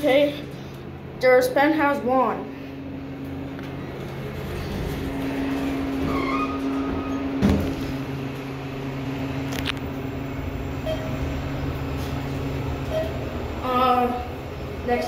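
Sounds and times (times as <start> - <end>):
machine hum: 0.0 - 15.0
elevator doors sliding closed: 4.0 - 13.6.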